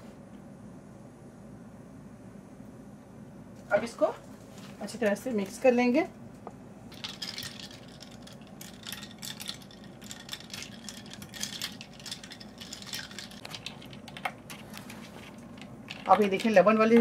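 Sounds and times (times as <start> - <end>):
spoon stirring drink with ice: 6.9 - 17.0.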